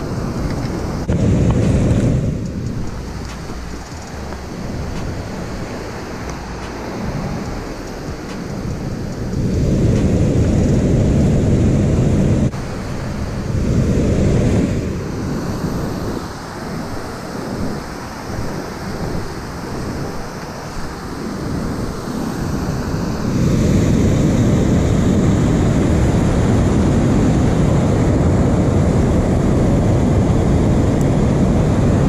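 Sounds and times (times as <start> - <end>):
water rushing over spillway: 0.0 - 32.0
wind buffeting microphone: 0.0 - 32.0.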